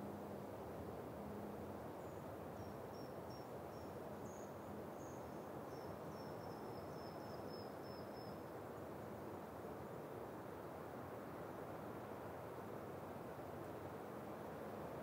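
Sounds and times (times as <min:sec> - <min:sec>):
wind through pine trees: 0:00.0 - 0:15.0.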